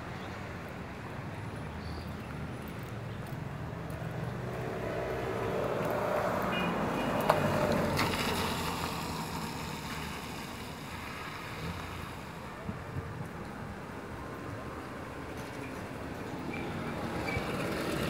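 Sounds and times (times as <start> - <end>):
vehicle passing: 4.0 - 12.2.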